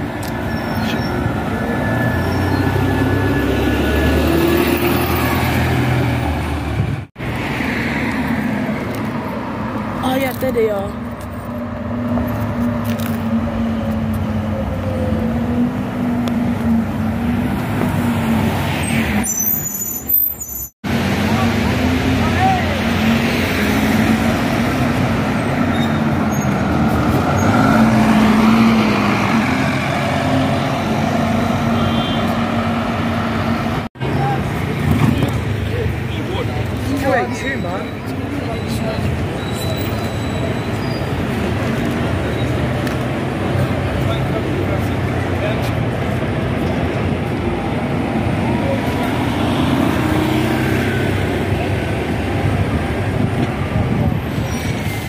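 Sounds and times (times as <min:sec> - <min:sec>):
bus engine pulling away: 0:00.0 - 0:09.7, 0:11.2 - 0:55.0
street traffic noise: 0:00.0 - 0:55.0.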